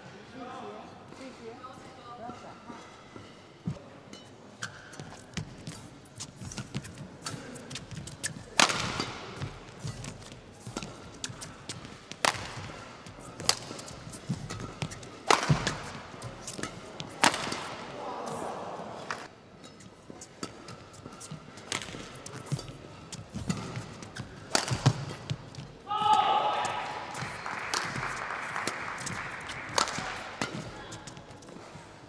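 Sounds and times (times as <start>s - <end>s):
rackets striking shuttlecock: 4.6s - 17.9s, 20.3s - 31.2s
shoe squeaks: 22.2s - 24.6s.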